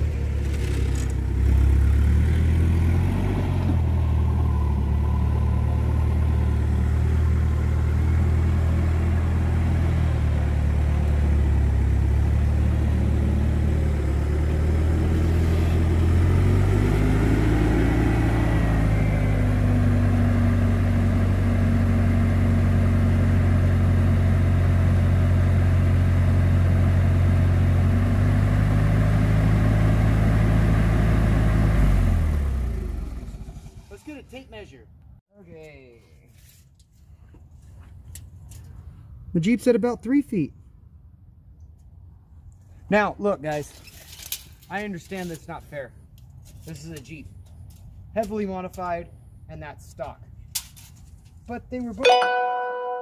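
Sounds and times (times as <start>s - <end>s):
forklift engine running: 0.0s - 33.9s
rising and falling tone: 52.0s - 53.0s.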